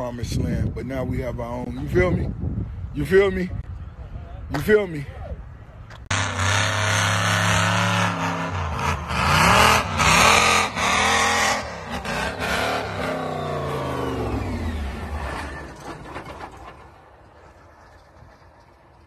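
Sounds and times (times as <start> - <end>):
monster truck engine revving: 6.1 - 18.6.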